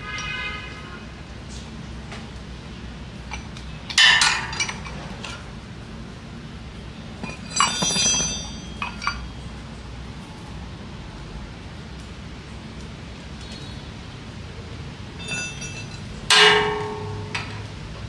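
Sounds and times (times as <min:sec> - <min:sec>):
steel tools clinking on metal: 0:07.2 - 0:09.4, 0:15.2 - 0:17.4.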